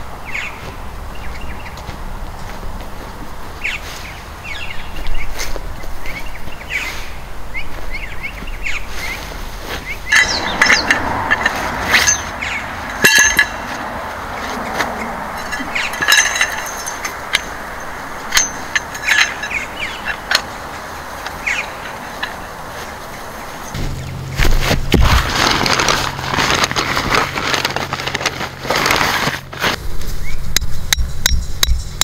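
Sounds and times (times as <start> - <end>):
birds chirping: 0.0 - 24.4, 30.1 - 32.0
steady background rush: 0.0 - 32.0
sharp clink: 10.1 - 13.8, 18.2 - 20.4.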